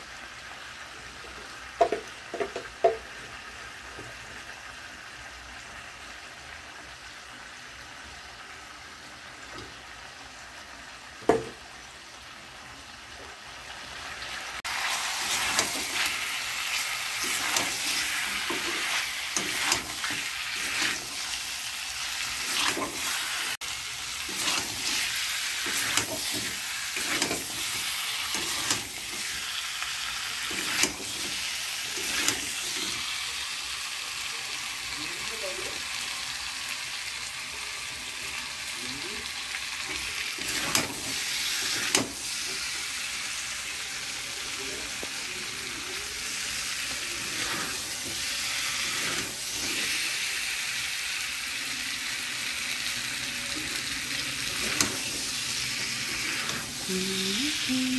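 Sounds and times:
chicken sizzling in oil: 0:00.0 - 0:57.9
spatula scraping a wok: 0:14.7 - 0:29.4, 0:30.4 - 0:33.0, 0:40.4 - 0:42.3, 0:47.1 - 0:50.0, 0:54.5 - 0:56.9.

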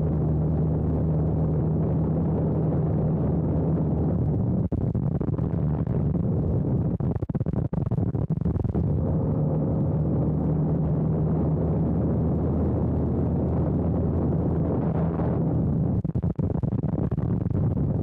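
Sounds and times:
plane engine and propeller drone: 0:00.0 - 0:04.8, 0:08.6 - 0:16.3
wind on microphone: 0:00.0 - 0:18.0.

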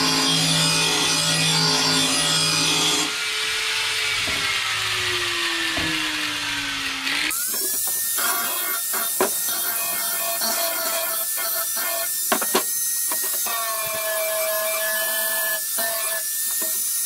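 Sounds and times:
angle grinder grinding steel: 0:00.0 - 0:17.0.

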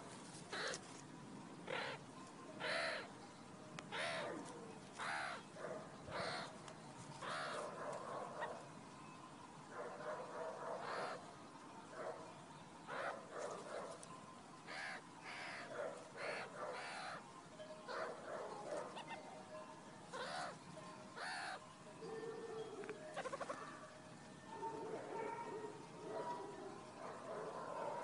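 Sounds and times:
longer lower animal calls: 0:02.6 - 0:03.1, 0:03.9 - 0:05.5, 0:21.2 - 0:21.8
short bird-like calls: 0:02.6 - 0:03.1, 0:03.9 - 0:04.4.

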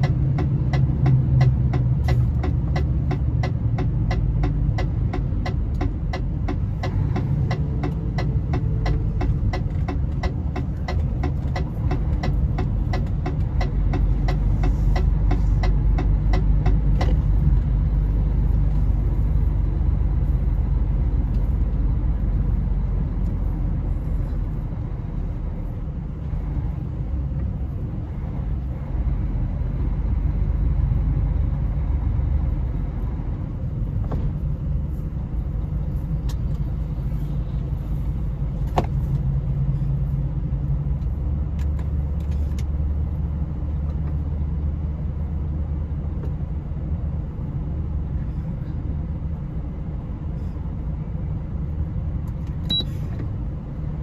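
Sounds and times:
regular ticking: 0:00.0 - 0:17.4
truck engine and tyres rumbling: 0:00.0 - 0:54.0.

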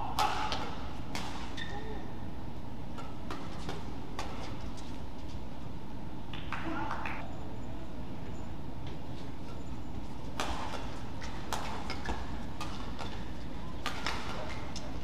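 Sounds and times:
rackets hitting shuttlecock: 0:00.0 - 0:01.9, 0:02.9 - 0:04.6, 0:10.3 - 0:15.0.

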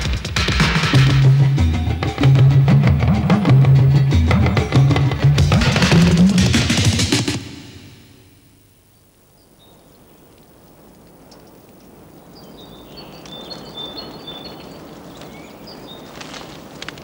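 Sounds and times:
faint woodland hiss: 0:07.4 - 0:16.9.

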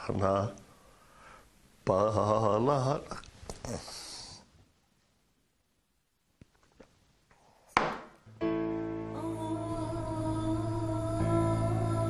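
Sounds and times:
sharp knock: 0:07.8 - 0:08.2
soft background music: 0:08.3 - 0:12.0.

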